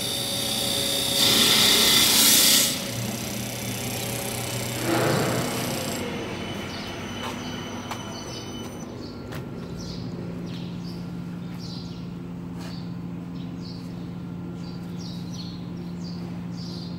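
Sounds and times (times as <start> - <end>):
lathe motor hum: 0.0 - 9.1.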